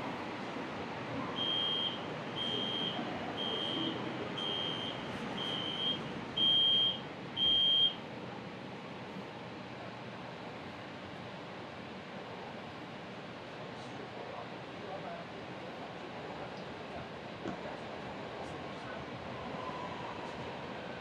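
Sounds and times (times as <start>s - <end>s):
train hum: 0.0s - 21.0s
short high warning beeps: 1.4s - 8.0s.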